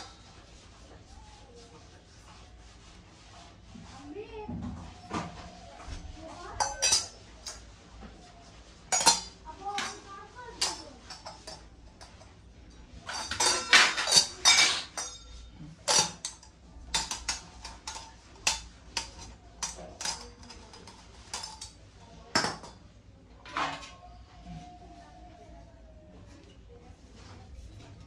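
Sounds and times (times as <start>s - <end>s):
brass utensils clinking and knocking: 6.6s - 7.6s, 8.9s - 12.4s, 13.0s - 21.8s.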